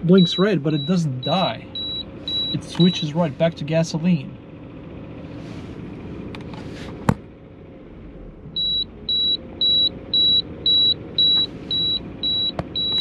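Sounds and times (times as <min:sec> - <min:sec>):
car engine idling: 0:00.0 - 0:13.0
short high beeps: 0:00.2 - 0:02.9.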